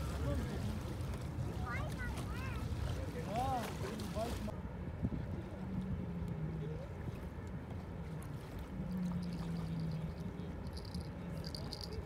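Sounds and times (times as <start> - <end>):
sea water: 0.0 - 12.0
wind: 0.0 - 12.0
low steady hum: 4.8 - 12.0.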